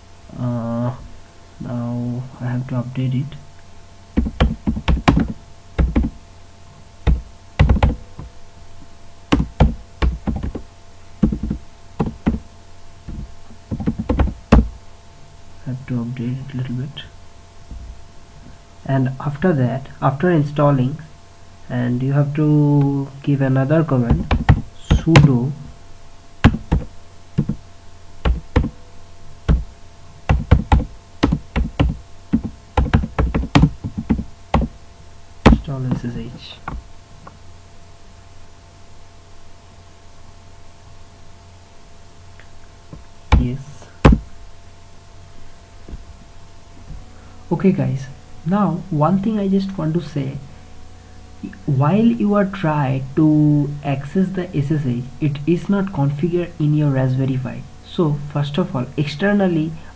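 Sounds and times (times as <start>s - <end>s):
computer keyboard typing: 4.2s - 6.2s, 7.1s - 8.0s, 9.3s - 10.6s, 11.2s - 12.4s, 13.1s - 14.7s, 24.1s - 25.4s, 26.4s - 27.6s, 28.3s - 28.7s, 29.5s - 29.7s, 30.3s - 34.7s.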